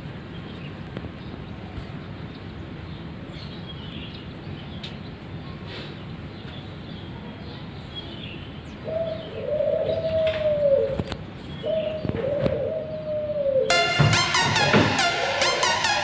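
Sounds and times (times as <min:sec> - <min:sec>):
bird calling: 0:08.8 - 0:16.0
music: 0:13.7 - 0:16.0.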